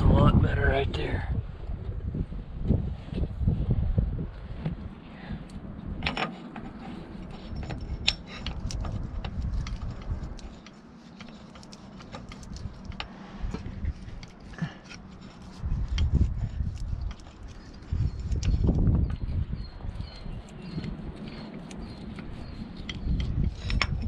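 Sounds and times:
low rumble: 0.0s - 10.6s.

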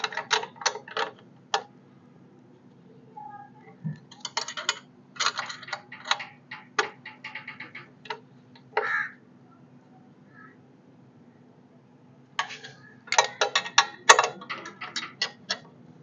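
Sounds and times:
spanner clicking on nut and bolt: 0.0s - 1.7s, 4.0s - 8.7s, 12.4s - 15.8s.

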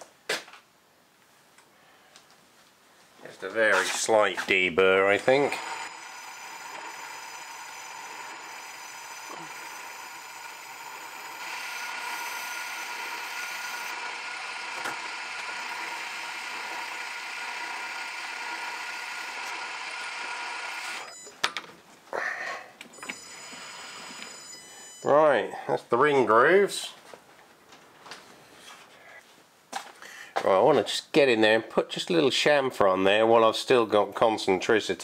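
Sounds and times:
lathe running: 5.1s - 21.1s, 23.0s - 24.6s.

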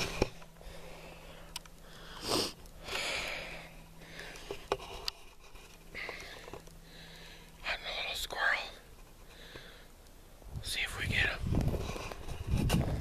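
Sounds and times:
person sniffing and breathing: 0.6s - 5.0s.

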